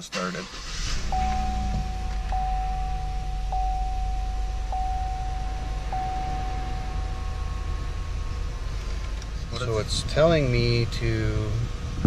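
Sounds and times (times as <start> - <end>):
engine humming low: 0.5 - 12.0
dashboard warning chime: 1.0 - 9.2.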